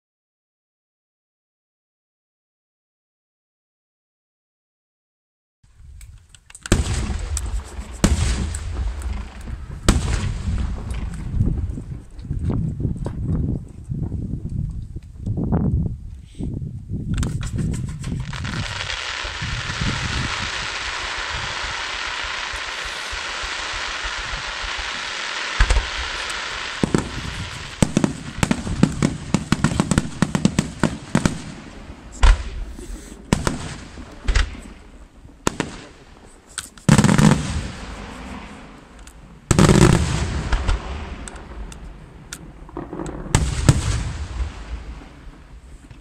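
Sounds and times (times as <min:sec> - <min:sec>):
fireworks crackling: 0:06.1 - 0:14.2, 0:17.1 - 0:46.0
firework shells booming: 0:06.6 - 0:13.3, 0:17.2 - 0:46.0
fireworks fountains hissing: 0:06.7 - 0:11.2, 0:17.2 - 0:42.1.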